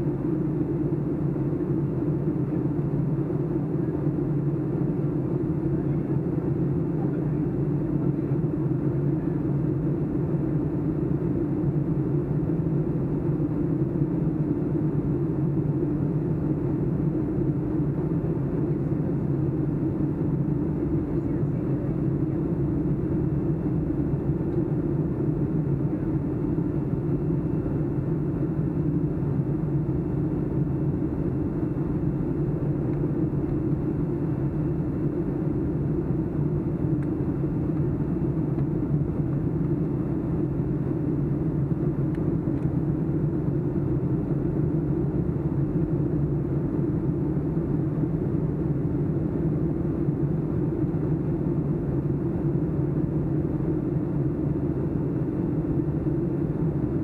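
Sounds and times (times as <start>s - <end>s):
jet engine drone in cabin: 0.0s - 57.0s.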